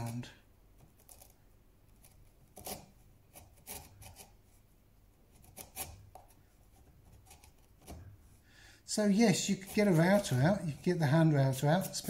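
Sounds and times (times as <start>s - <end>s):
chisel scraping wood: 2.0s - 4.4s, 5.3s - 8.1s, 9.3s - 12.0s.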